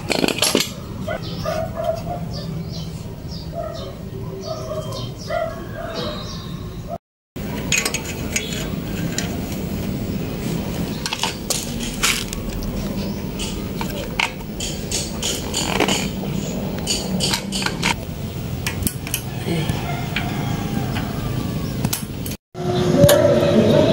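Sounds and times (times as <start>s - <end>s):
metallic clinks of engine parts: 7.4s - 9.4s.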